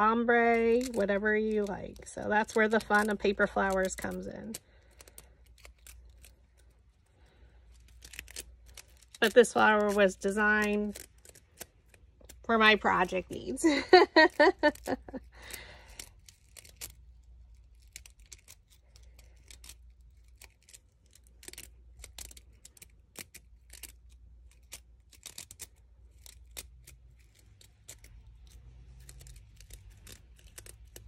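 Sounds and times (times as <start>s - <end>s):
paper strips crisp clicks and rustles: 0.0s - 31.0s.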